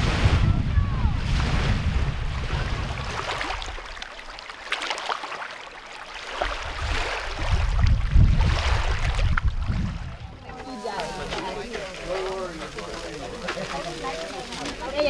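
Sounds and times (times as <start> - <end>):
wind buffeting microphone: 0.0 - 3.9, 6.5 - 12.1
small waves lapping: 0.0 - 15.0.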